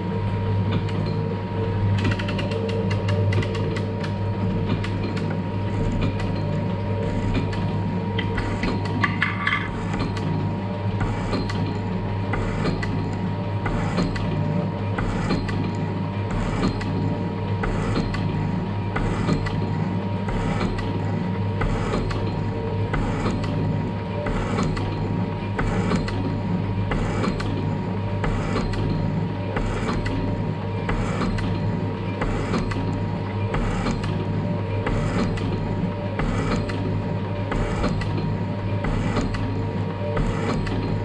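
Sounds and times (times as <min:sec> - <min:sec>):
metal shaper motor hum: 0:00.0 - 0:41.0.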